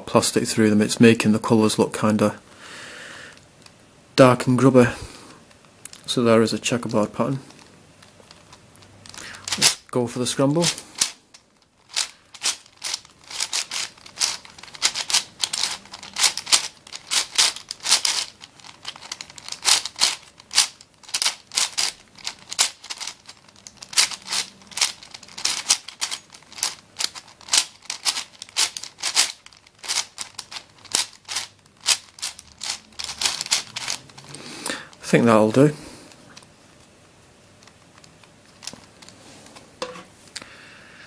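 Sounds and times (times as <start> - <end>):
puzzle cube clicking: 10.7 - 34.4.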